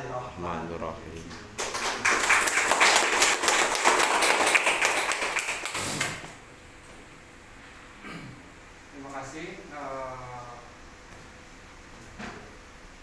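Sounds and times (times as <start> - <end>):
group applauding: 1.6 - 6.4.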